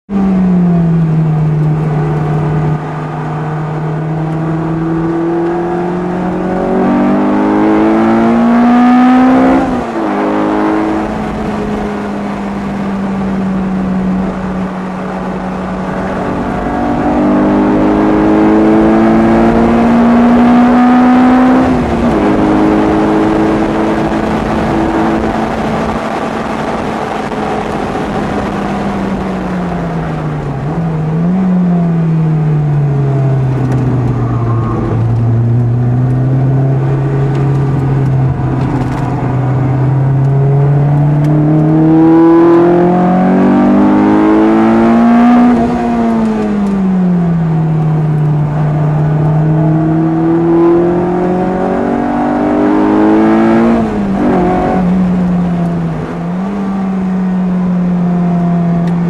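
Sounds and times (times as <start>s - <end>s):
car engine revving: 0.1s - 59.0s
steady rushing noise: 21.6s - 52.8s.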